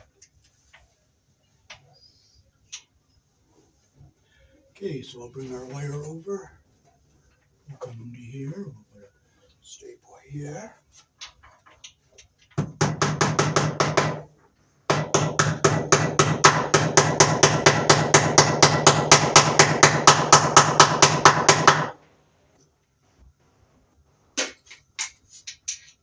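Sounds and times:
hammer tapping a staple into wood: 0:12.6 - 0:14.2, 0:14.9 - 0:22.0.

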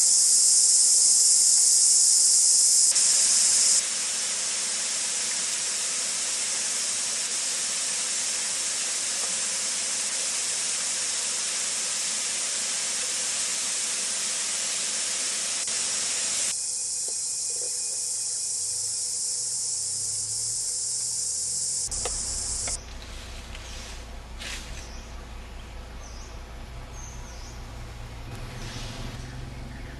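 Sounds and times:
waterfall rushing hiss: 0:02.9 - 0:16.5.

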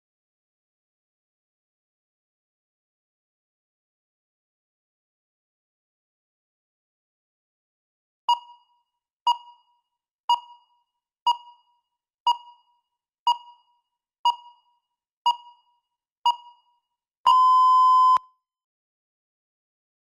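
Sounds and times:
long steady timer beep: 0:08.3 - 0:18.3.

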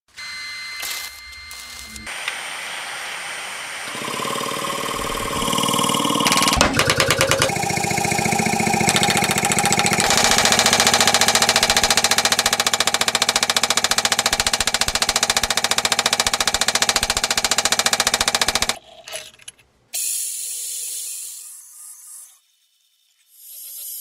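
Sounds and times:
power hammer striking hot metal: 0:03.9 - 0:17.3
drill press boring into steel: 0:03.9 - 0:18.8.

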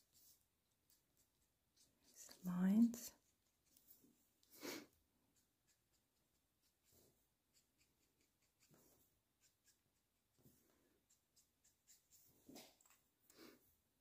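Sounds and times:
marker scratching on paper: 0:00.0 - 0:04.0, 0:05.3 - 0:10.3, 0:11.0 - 0:12.6.

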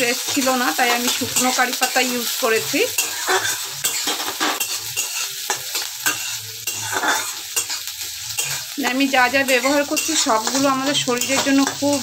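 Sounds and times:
onions sizzling in hot oil: 0:00.0 - 0:12.0
metal spatula scraping a pan: 0:00.2 - 0:12.0.

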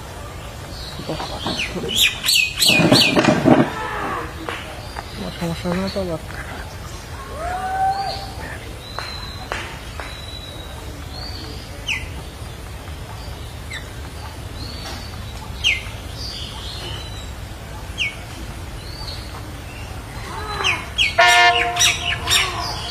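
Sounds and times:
harsh bird squawking call: 0:01.0 - 0:04.5, 0:20.1 - 0:22.9.

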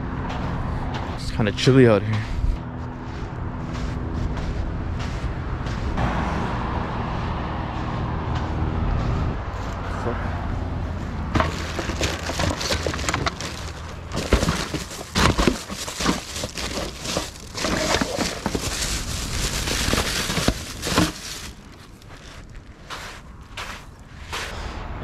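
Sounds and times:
knocks and scrapes: 0:11.2 - 0:24.8
plastic bags rustling: 0:11.4 - 0:22.8.

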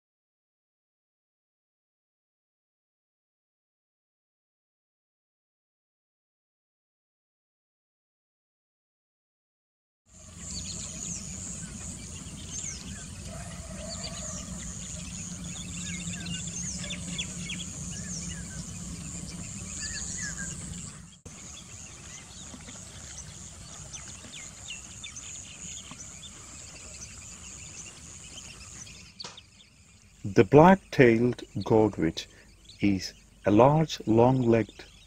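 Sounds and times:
insect drone: 0:10.1 - 0:25.7
low rumble: 0:10.2 - 0:29.2
bird chirps and calls: 0:10.2 - 0:35.0.

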